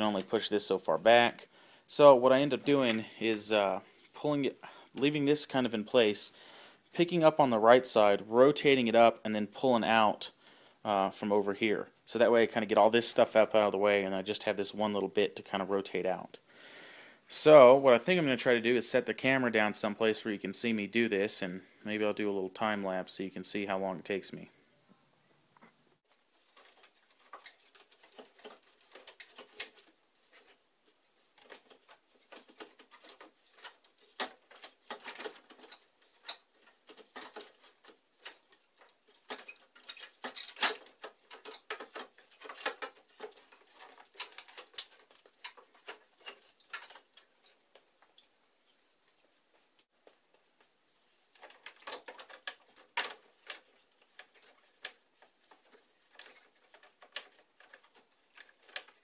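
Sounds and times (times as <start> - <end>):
metal and plastic clicks and scraping: 26.4 - 48.3, 50.0 - 59.0.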